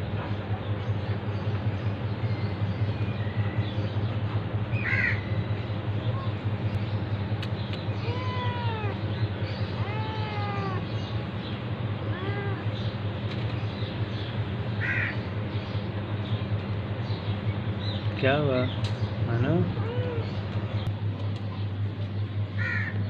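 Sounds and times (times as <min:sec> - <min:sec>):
steady low hum: 0:00.0 - 0:23.0
cat meowing: 0:08.0 - 0:09.0, 0:09.6 - 0:10.9, 0:12.0 - 0:12.8, 0:19.8 - 0:20.4.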